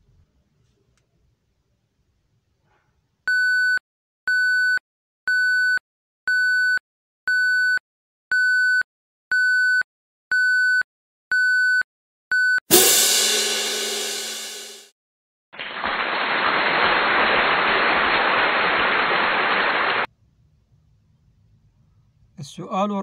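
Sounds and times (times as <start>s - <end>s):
electronic countdown timer beeps: 3.3s - 12.6s.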